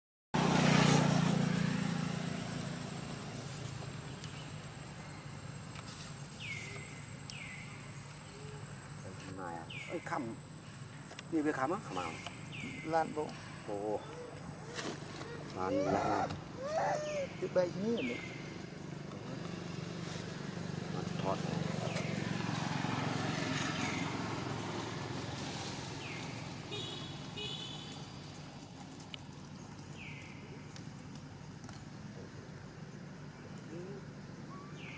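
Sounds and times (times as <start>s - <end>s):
passing vehicle engine: 0.4s - 4.8s, 11.4s - 29.1s.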